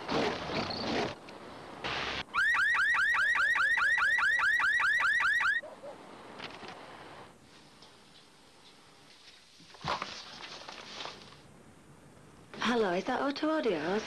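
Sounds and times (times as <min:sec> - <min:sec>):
car alarm rising whoop: 0:02.3 - 0:05.6.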